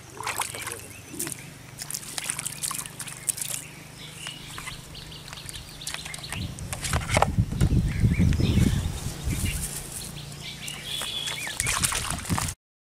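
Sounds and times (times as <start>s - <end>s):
mud squelching and splashing: 0.0s - 7.3s, 9.1s - 12.6s
faint bird calls: 0.1s - 6.6s, 7.8s - 11.8s
loud low rumble: 6.4s - 10.9s.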